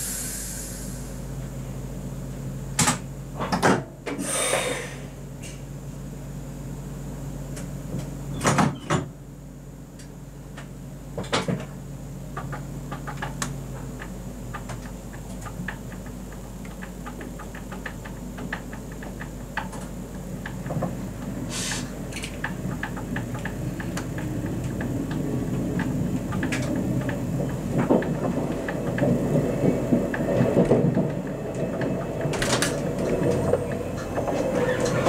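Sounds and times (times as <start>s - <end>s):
short hiss: 0.0s - 1.1s, 4.2s - 5.1s, 21.5s - 21.9s
steady low hum: 0.0s - 8.3s, 9.1s - 35.0s
faint clicks of train starting: 12.4s - 35.0s.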